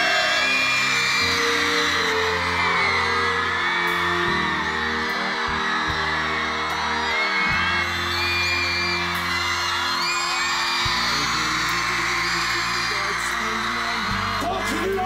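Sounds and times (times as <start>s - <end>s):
crowd screaming and cheering: 0.0s - 15.0s
slow background music: 0.0s - 15.0s.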